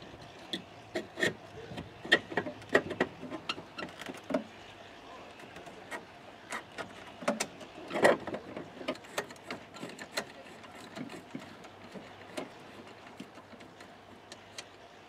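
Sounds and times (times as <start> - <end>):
socket wrench tightening nut: 8.9 - 14.7.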